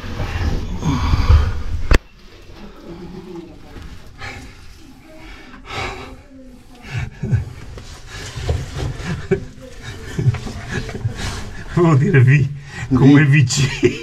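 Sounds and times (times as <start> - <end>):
person panting and breathing hard: 4.1 - 11.9
body scraping against rock: 7.2 - 11.7.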